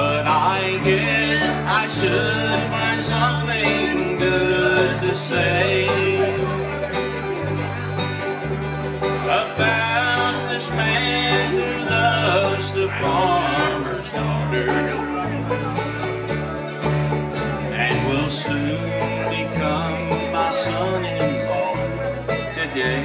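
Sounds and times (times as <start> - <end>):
bass low notes: 0.0 - 23.0
bluegrass band playing: 0.0 - 23.0.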